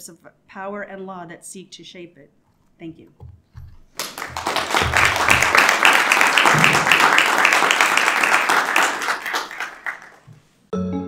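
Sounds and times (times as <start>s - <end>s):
audience applauding: 4.0s - 10.3s.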